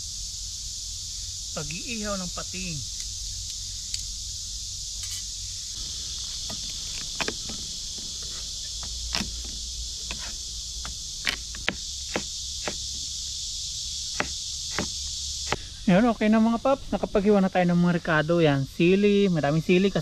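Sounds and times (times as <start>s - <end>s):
fire crackling: 0.0s - 15.9s
steady high hiss: 0.0s - 20.0s.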